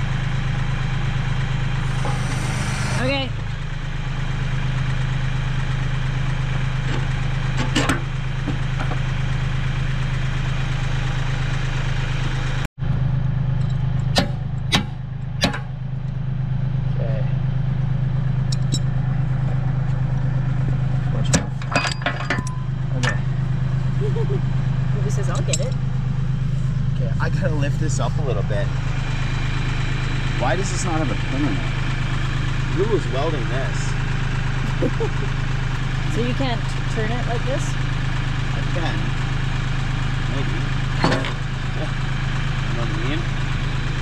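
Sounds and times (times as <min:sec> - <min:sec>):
tractor engine idling: 0:00.0 - 0:44.0
sharp metallic clanks: 0:21.3 - 0:23.4.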